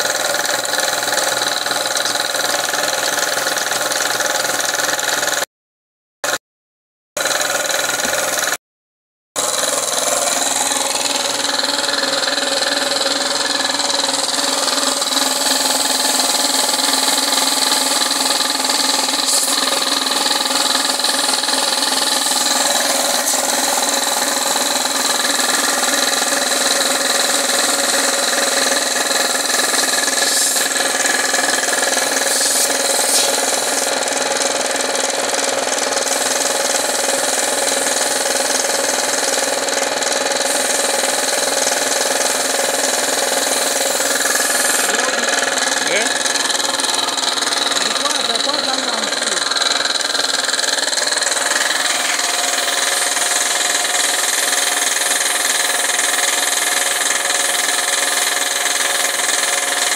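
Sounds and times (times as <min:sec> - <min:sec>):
air compressor running: 0:00.0 - 0:05.5, 0:06.2 - 0:06.4, 0:07.2 - 0:08.6, 0:09.4 - 0:59.9
spray gun air hiss: 0:19.2 - 0:19.9, 0:29.5 - 0:34.0, 0:40.5 - 0:44.9.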